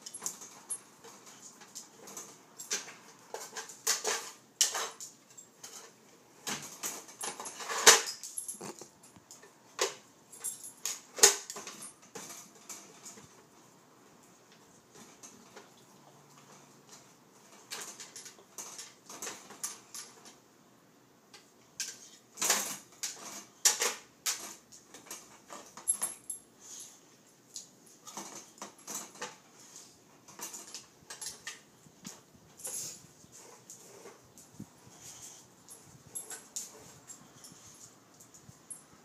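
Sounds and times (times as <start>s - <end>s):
plastic toy clattering on tile floor: 0.1s - 8.8s, 21.8s - 26.1s.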